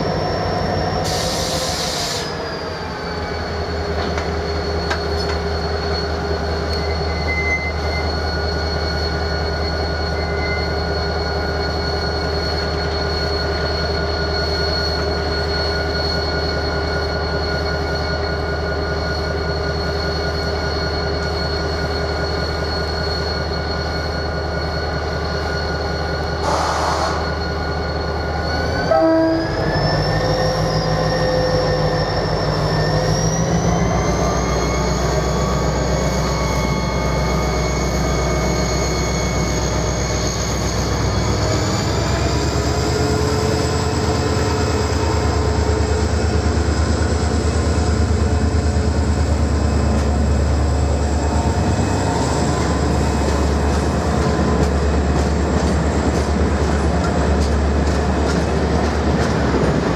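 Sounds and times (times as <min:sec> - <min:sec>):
locomotive engine drone: 0:00.0 - 0:59.9
locomotive horn toot: 0:28.9 - 0:29.7.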